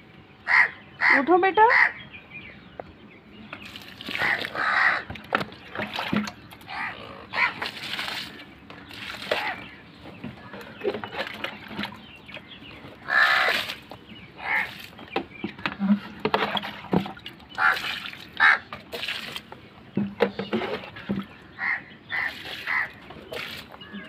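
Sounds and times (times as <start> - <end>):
water splashing onto plants: 3.6 - 4.6, 5.2 - 6.4, 7.6 - 9.6, 13.4 - 13.8, 16.4 - 19.5, 22.2 - 23.8.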